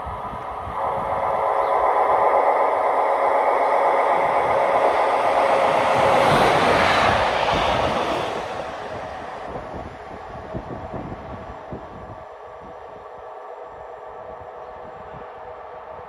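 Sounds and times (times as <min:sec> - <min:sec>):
train wheels rushing on rails: 0:00.0 - 0:16.0.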